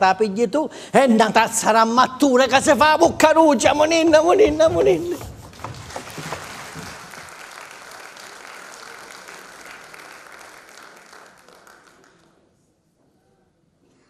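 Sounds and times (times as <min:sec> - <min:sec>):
audience applauding: 0:05.4 - 0:12.5.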